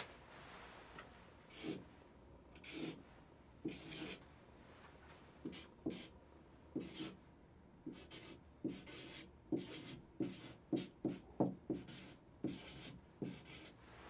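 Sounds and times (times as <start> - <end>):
marker scratching on paper: 1.5 - 1.8, 2.6 - 3.0, 3.6 - 4.2, 5.4 - 6.1, 6.8 - 7.2, 7.9 - 13.8.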